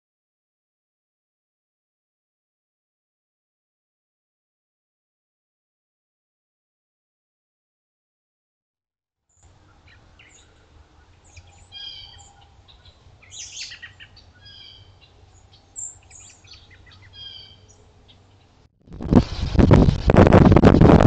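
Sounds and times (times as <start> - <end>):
birds chattering calls: 9.4 - 18.7
faint low hum: 9.4 - 21.0.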